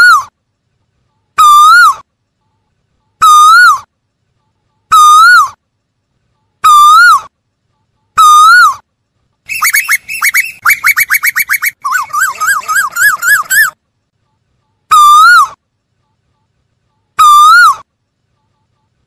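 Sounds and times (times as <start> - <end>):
bird whistled calls: 9.5 - 13.8
fast run of high bird notes: 9.5 - 13.8.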